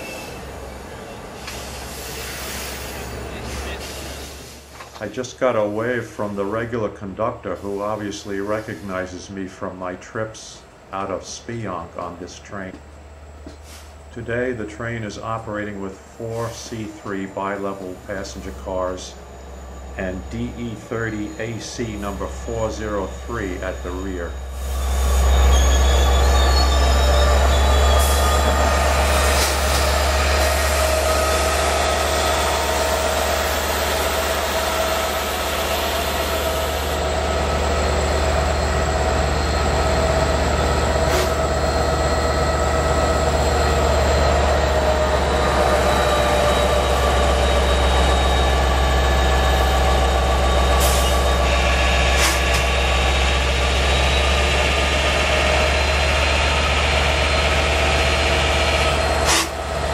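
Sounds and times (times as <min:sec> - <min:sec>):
locomotive engine hum: 0:00.0 - 0:59.9
steady higher tones: 0:14.1 - 0:59.9.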